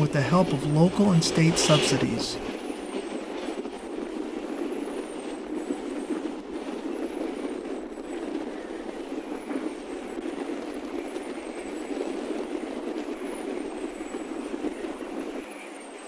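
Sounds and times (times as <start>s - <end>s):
wind rushing: 0.0s - 2.7s
wind turbine swish: 0.0s - 16.0s.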